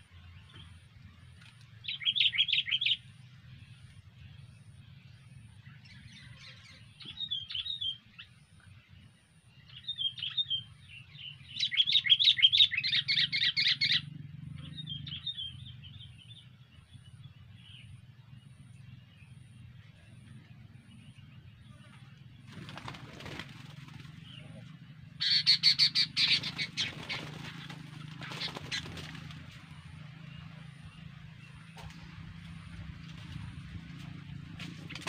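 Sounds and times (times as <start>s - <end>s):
faint low hum: 0.0s - 35.0s
bird chirping rapidly: 1.8s - 3.3s, 9.7s - 16.4s, 22.5s - 32.9s.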